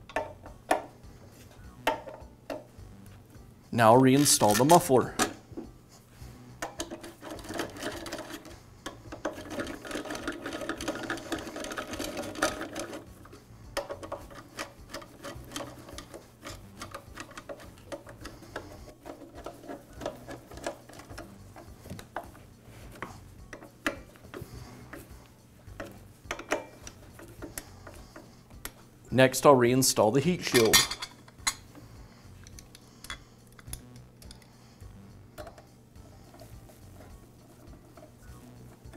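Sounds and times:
metal taps: 0.0s - 0.9s, 1.9s - 2.7s, 23.0s - 25.1s, 25.7s - 28.0s.

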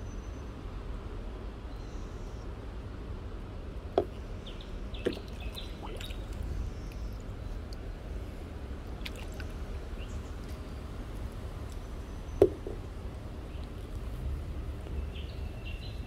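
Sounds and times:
water dripping and lapping: 4.0s - 16.0s
sharp knocks: 12.4s - 12.8s.

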